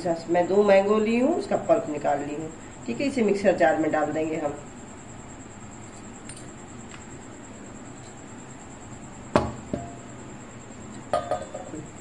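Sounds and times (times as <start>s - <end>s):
glass bowl knocking on steel jar: 9.4s - 10.0s, 11.1s - 11.8s
light glass clinks: 11.1s - 11.8s.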